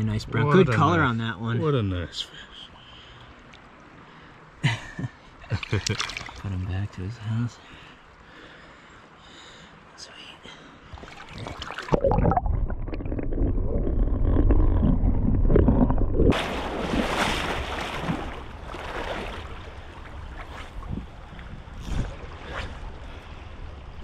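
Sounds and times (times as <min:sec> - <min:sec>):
river water sloshing: 0:05.3 - 0:06.7, 0:10.7 - 0:24.0
water splashing rush: 0:05.6 - 0:06.5, 0:10.9 - 0:20.8.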